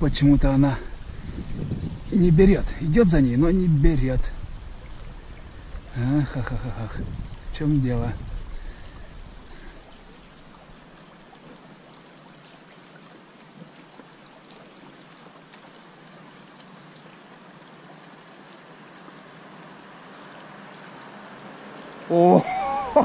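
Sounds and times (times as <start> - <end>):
stream water flowing: 0.0 - 23.0
faint ticks: 9.8 - 20.3.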